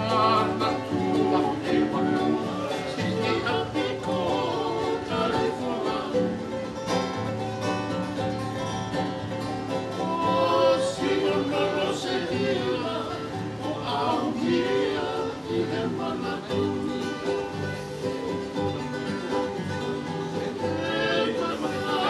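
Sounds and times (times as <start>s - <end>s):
men singing together: 0.0s - 6.7s, 9.8s - 18.0s, 19.9s - 22.0s
strummed acoustic guitars: 0.0s - 22.0s
ukulele: 0.0s - 22.0s.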